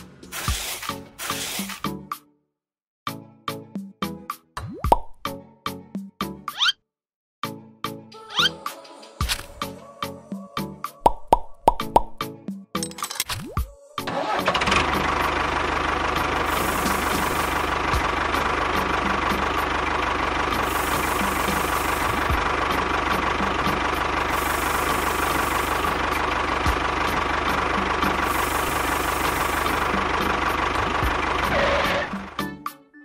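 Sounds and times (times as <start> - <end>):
engine running steadily: 14.1 - 32.6.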